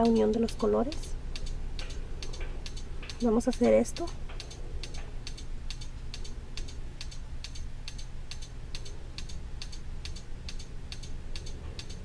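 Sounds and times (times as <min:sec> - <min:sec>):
low steady hum: 0:00.0 - 0:12.0
regular paired clicks: 0:00.0 - 0:12.0.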